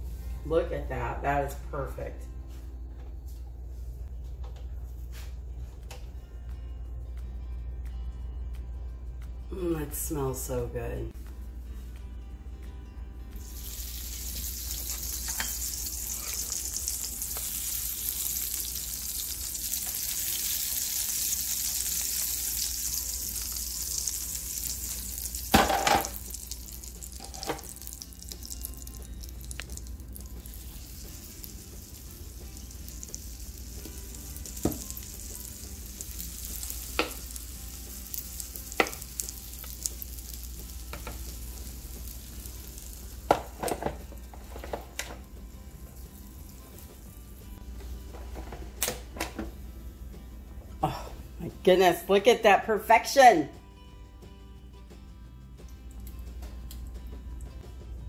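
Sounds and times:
butter sizzling on hot plates: 13.4 - 48.6.

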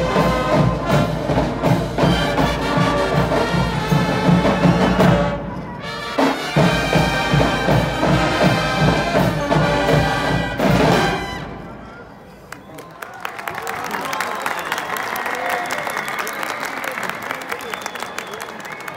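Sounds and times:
marching band playing: 0.0 - 11.8.

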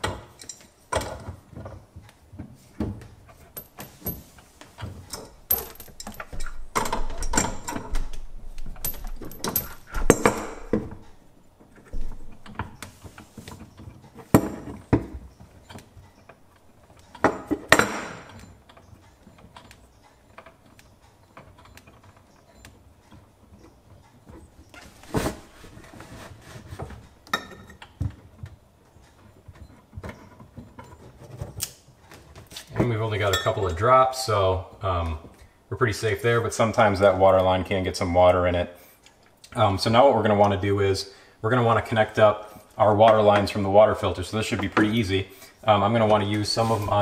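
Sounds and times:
wrench clinking on metal fittings: 0.0 - 1.4, 3.3 - 11.2, 14.0 - 24.4.

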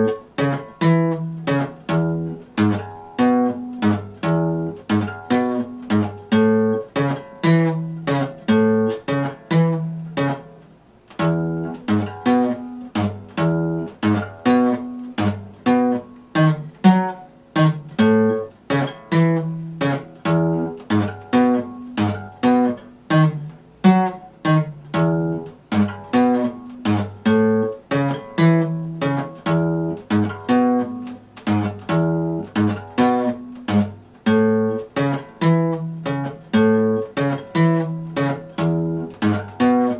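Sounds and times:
acoustic guitar strumming: 0.0 - 39.9.

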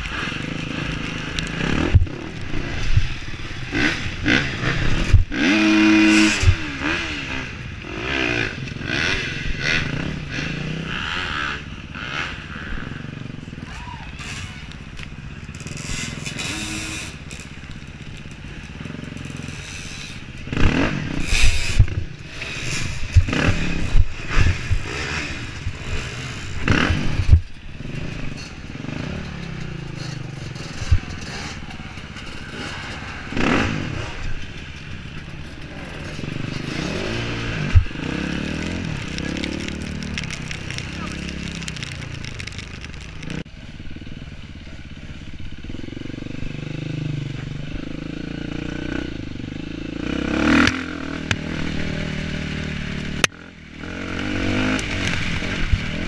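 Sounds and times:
motorcycle engine revving: 0.0 - 13.6, 14.2 - 56.0.

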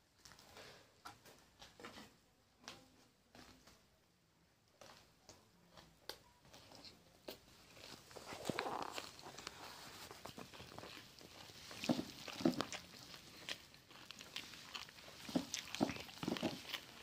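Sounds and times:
puffed rice being chewed: 4.7 - 17.0.

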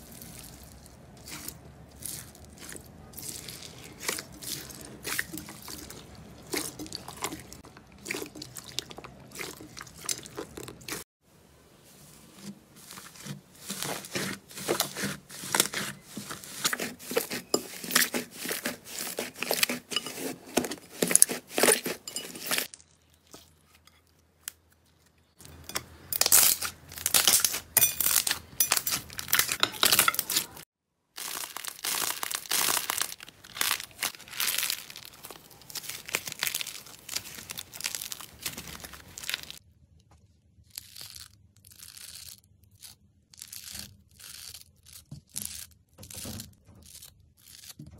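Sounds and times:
scissors cutting foam sponge: 12.4 - 22.0
slime popping and tearing: 31.2 - 39.6.

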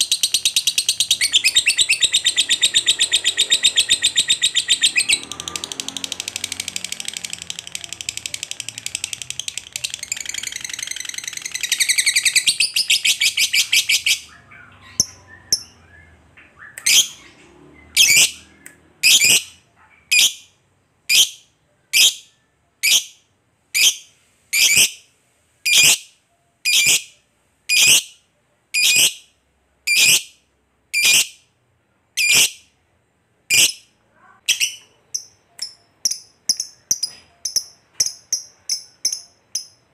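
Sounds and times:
lovebird chattering trill: 0.0 - 15.8, 29.9 - 31.4, 32.2 - 32.7, 34.5 - 39.9
lovebird sharp calls: 31.0 - 31.4.

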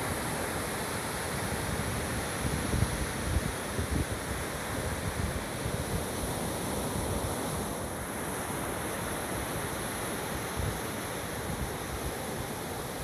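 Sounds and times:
surf on beach: 0.0 - 13.0
wind rumbling on microphone: 1.2 - 7.7.

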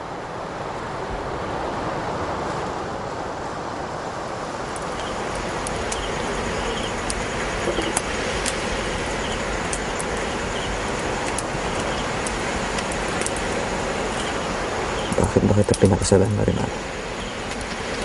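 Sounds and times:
steady rushing background: 0.0 - 18.0
campfire crackling and popping: 4.6 - 18.0.

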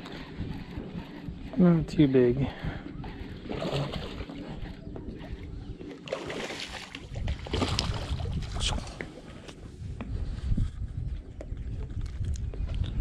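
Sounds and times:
fish splashing in water: 6.0 - 8.6.

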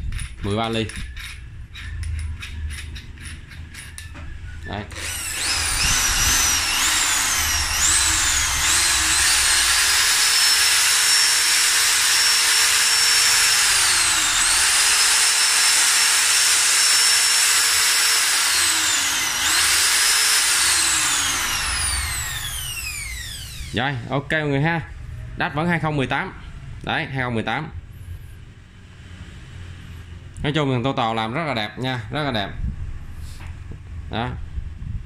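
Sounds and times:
drill motor whine: 4.9 - 23.8.

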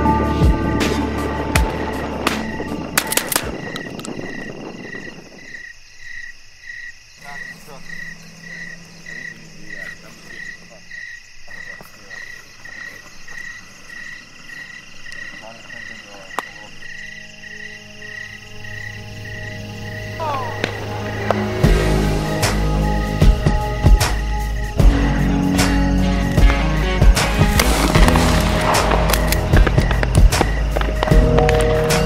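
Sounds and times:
music: 0.0 - 4.5, 7.2 - 10.8, 15.2 - 32.0.

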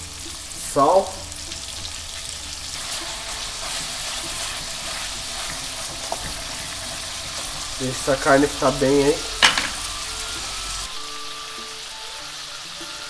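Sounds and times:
pork sizzling in a saucepan: 0.0 - 13.0
wooden spoon stirring: 2.6 - 10.2.

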